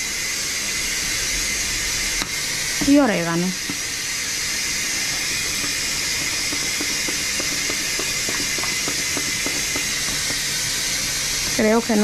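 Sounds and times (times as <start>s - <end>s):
spice shaker taps: 5.3s - 10.6s.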